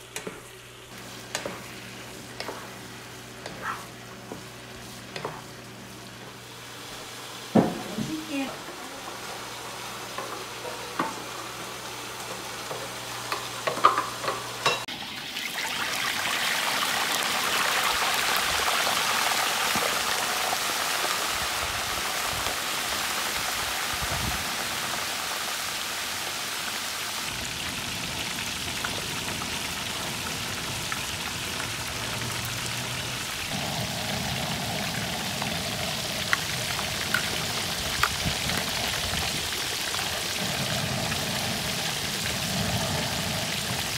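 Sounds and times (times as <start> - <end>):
fish deep-frying in hot oil: 0.9 - 43.9
sauce simmering: 27.2 - 43.9.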